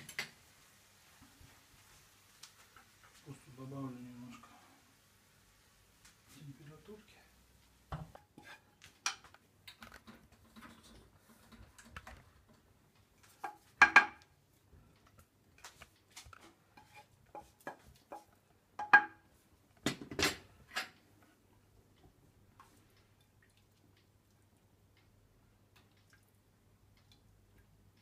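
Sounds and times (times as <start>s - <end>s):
wooden spatula scraping a pan: 8.0s - 9.2s, 10.1s - 12.0s, 16.2s - 18.9s.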